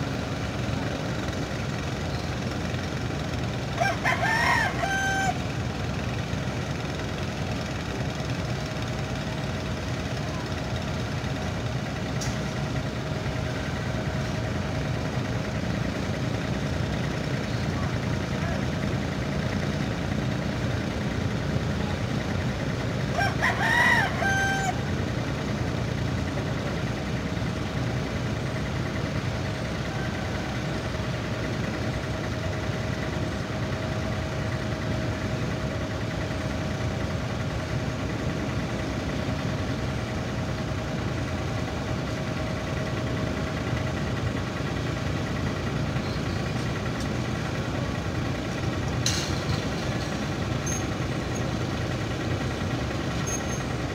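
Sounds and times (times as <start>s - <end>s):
ship engine rumbling: 0.0s - 53.9s
rooster crowing: 3.8s - 5.4s, 23.1s - 24.9s.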